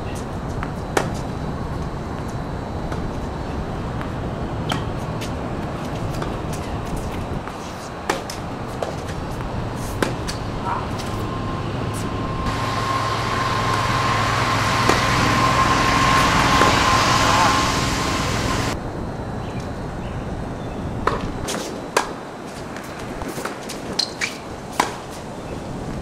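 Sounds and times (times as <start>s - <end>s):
tennis racket hitting ball: 0.1s - 1.3s, 3.9s - 18.8s, 23.2s - 25.2s
low motor hum: 8.5s - 18.8s
hiss with steady whine: 11.8s - 18.8s.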